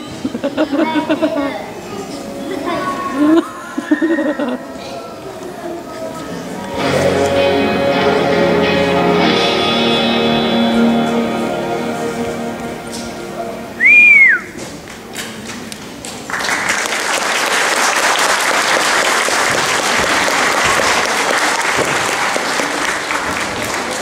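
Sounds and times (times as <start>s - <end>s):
backing music: 6.6s - 14.6s
loud whistle: 13.8s - 14.6s
audience applauding: 16.2s - 24.0s.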